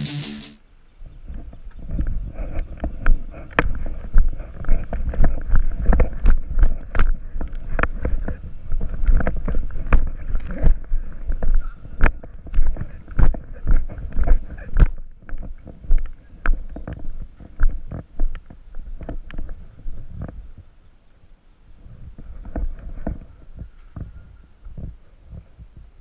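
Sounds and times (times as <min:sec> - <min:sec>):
wind buffeting microphone: 0:01.0 - 0:20.8.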